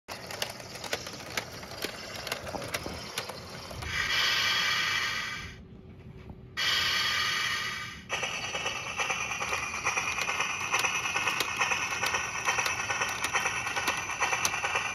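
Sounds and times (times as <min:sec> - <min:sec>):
toy train motor rattling: 0:00.1 - 0:05.5, 0:06.6 - 0:14.9
loud hiss: 0:03.9 - 0:05.6, 0:06.6 - 0:11.7.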